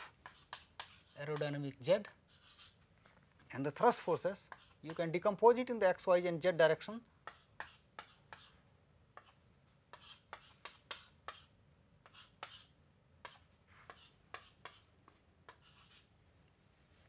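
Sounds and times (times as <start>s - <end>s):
chalk tapping and scratching: 0.0s - 3.2s, 3.8s - 5.4s, 7.2s - 16.1s.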